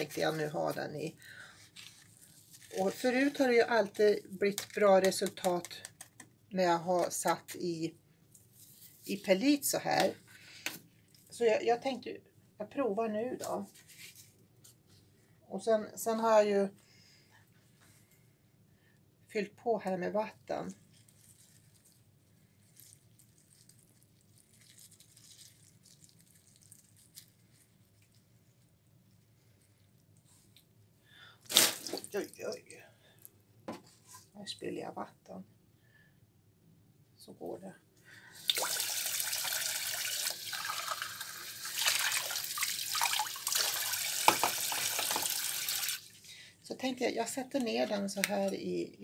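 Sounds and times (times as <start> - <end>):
water trickling into pot: 38.4 - 46.1.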